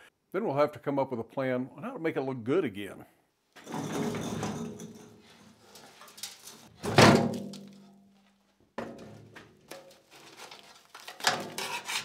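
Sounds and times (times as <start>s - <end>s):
steel cart scraping rattle: 3.6s - 6.7s.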